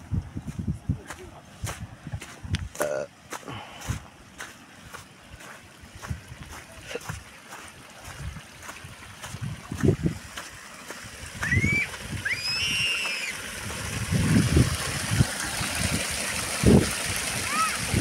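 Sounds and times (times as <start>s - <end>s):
water splashing onto wet ground: 3.3s - 18.0s.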